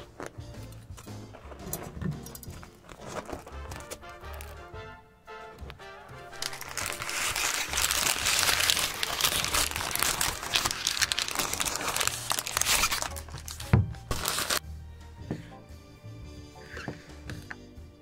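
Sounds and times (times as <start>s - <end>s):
paper wrapping crinkling: 0.0s - 4.7s, 5.6s - 14.6s
background music: 0.0s - 18.0s.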